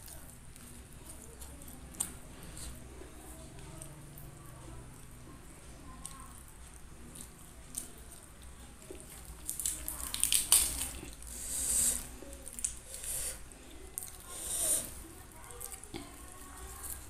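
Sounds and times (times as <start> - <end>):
lettuce leaves tearing and rustling: 8.8 - 11.3.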